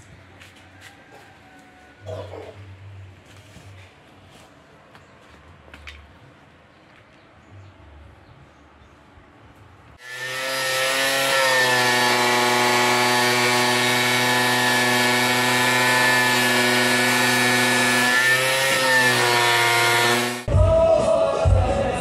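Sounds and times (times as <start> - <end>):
angle grinder cutting plywood: 10.0 - 20.5.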